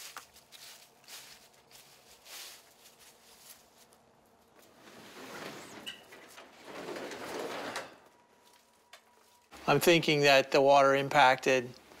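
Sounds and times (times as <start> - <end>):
footsteps crunching dry leaves: 0.0 - 4.1.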